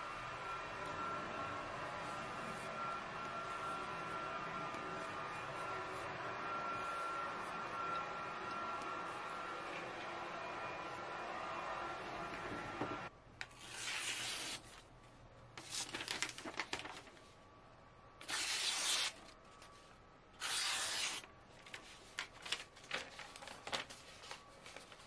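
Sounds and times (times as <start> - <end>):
knife slicing paper: 13.5 - 14.8, 18.2 - 19.3, 20.4 - 21.3
paper crackling: 15.6 - 17.3, 18.2 - 25.0.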